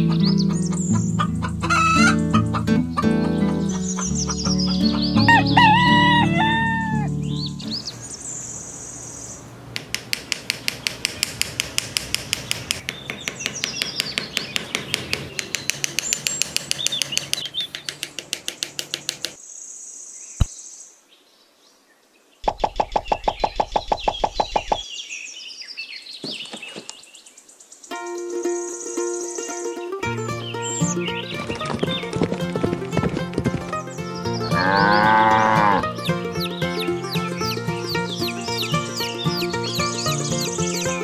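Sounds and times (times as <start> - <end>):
small birds chirping: 0.0 - 41.0
fast even clicking: 9.8 - 19.4, 22.4 - 24.8.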